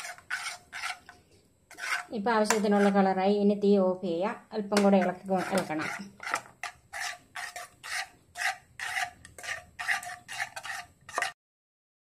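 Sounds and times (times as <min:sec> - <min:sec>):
metal spoon scraping frying pan: 0:00.0 - 0:03.2, 0:04.7 - 0:11.4.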